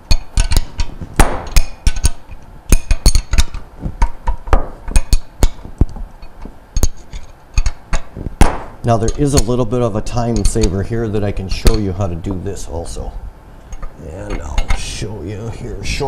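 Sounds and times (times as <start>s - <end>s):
wrench clicking on metal bolts: 0.0s - 5.6s.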